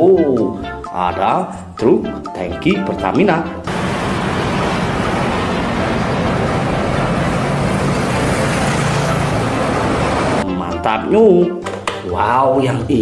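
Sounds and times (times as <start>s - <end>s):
road and traffic noise: 3.7s - 10.4s
truck engine running: 3.7s - 10.4s.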